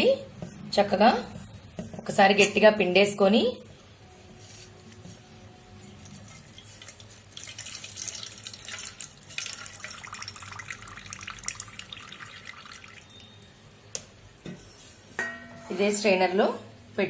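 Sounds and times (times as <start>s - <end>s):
whey dripping into steel bowl: 6.0s - 13.5s.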